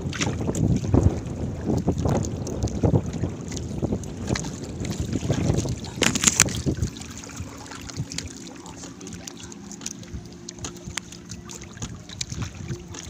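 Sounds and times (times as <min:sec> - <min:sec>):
water splashing and dripping: 0:00.0 - 0:13.0
wind rumble on microphone: 0:00.0 - 0:13.0
net hauled over boat side: 0:03.4 - 0:13.0.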